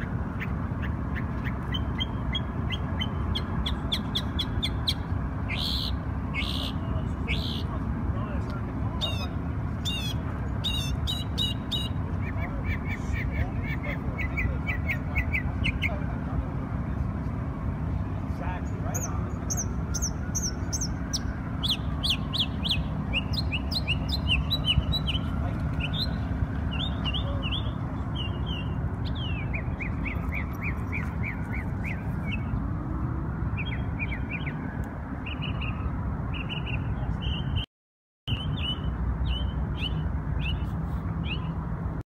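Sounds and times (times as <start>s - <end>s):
songbird chirping: 0.0s - 7.8s, 17.9s - 32.9s
city traffic rumble: 0.0s - 37.7s, 38.3s - 42.0s.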